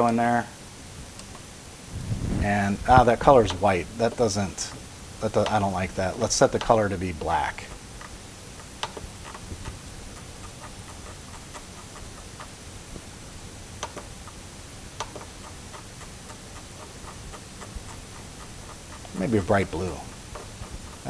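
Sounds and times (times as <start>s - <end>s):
scroll wheel ticking: 3.0s - 21.0s
sharp clicks: 7.7s - 12.6s, 13.8s - 14.4s, 15.0s - 21.0s.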